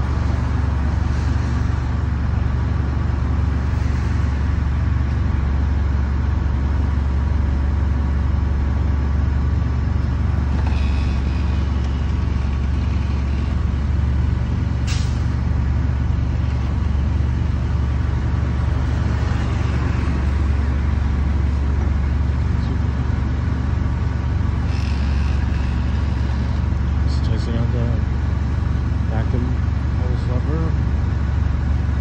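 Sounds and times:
truck engine running: 0:00.0 - 0:32.0
short hiss: 0:14.8 - 0:15.3.

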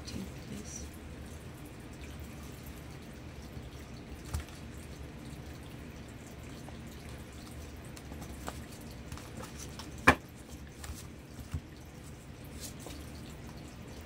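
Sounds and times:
cards being shuffled: 0:07.9 - 0:11.7.

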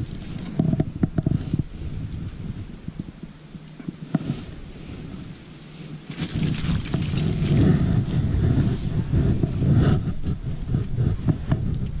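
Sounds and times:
light clicks and rustles: 0:00.0 - 0:08.2
wind buffeting microphone: 0:00.0 - 0:12.0.

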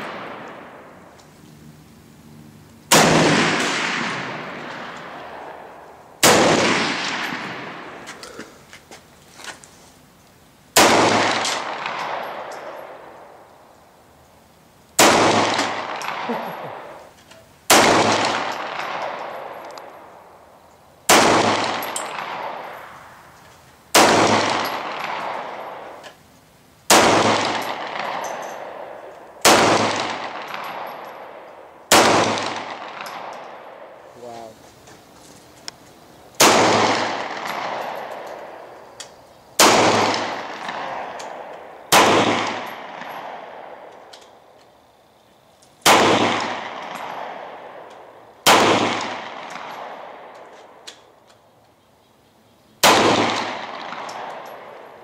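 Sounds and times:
pistol gunshots with long echo: 0:00.0 - 0:01.1, 0:02.9 - 0:08.0, 0:10.7 - 0:13.4, 0:15.0 - 0:17.0, 0:17.7 - 0:20.2, 0:21.0 - 0:23.0, 0:23.9 - 0:26.0, 0:26.9 - 0:34.0, 0:36.4 - 0:38.8, 0:39.6 - 0:44.1, 0:45.8 - 0:50.8, 0:52.8 - 0:55.0.

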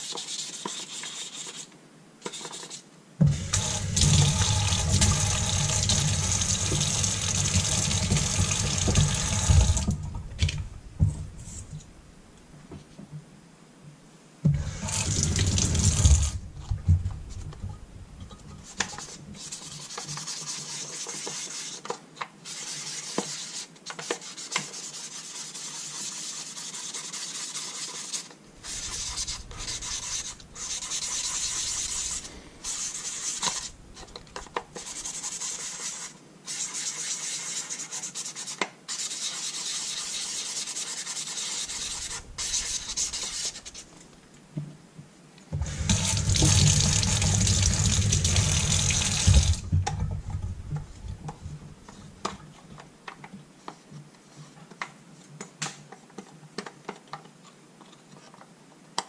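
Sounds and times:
sandpaper rubbing on panel: 0:00.0 - 0:01.7, 0:02.3 - 0:09.9, 0:18.6 - 0:43.9
water running from tap: 0:03.3 - 0:10.6, 0:14.6 - 0:16.4, 0:45.6 - 0:49.7.

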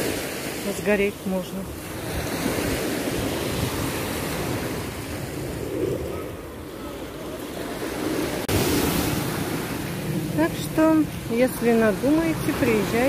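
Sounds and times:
small waves on sandy beach: 0:00.0 - 0:13.0
wind buffeting microphone: 0:01.8 - 0:13.0.

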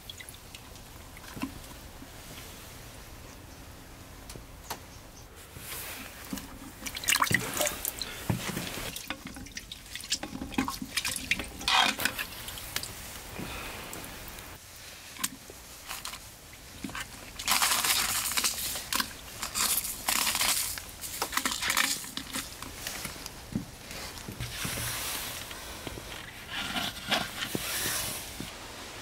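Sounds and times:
gloves crinkling and rustling: 0:05.3 - 0:29.0
small splashes in brine: 0:06.7 - 0:13.0.

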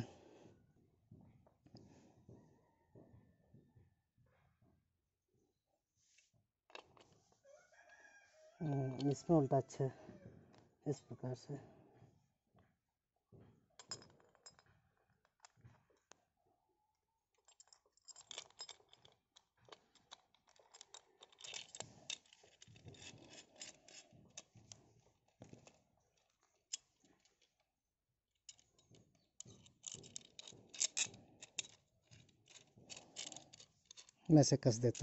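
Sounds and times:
small metal parts clicking: 0:17.5 - 0:24.7, 0:28.4 - 0:35.0.

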